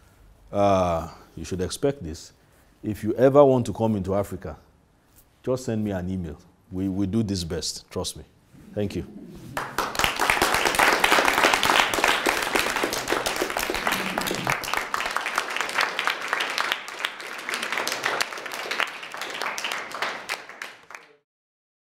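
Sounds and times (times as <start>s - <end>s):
audience applauding: 9.5s - 21.2s.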